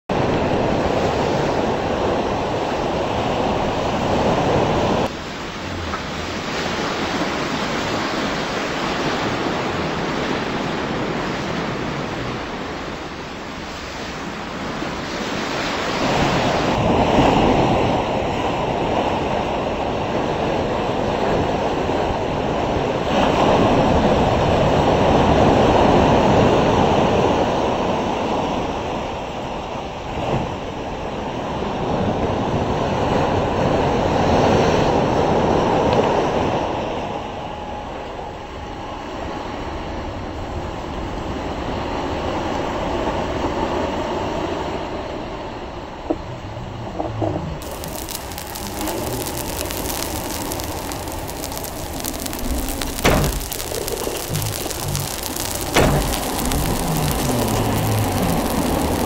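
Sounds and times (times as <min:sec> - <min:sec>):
ocean surf breaking: 0:47.6 - 0:59.0.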